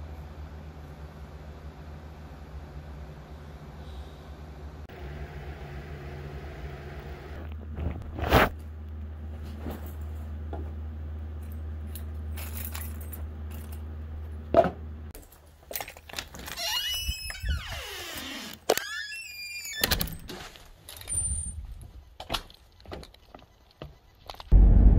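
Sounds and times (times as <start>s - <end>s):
steady low hum: 24.1s - 24.9s.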